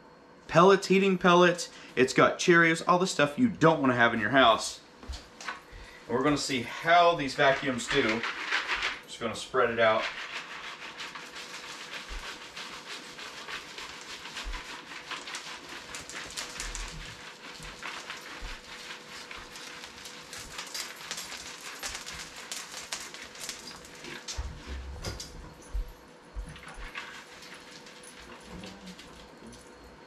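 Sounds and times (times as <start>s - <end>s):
debris pouring onto floor: 10.4s - 25.2s, 26.6s - 29.4s.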